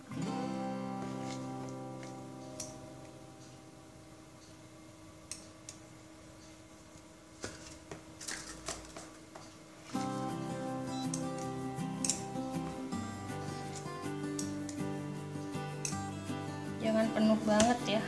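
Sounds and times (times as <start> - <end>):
background guitar music: 0.0 - 4.6, 9.9 - 18.0.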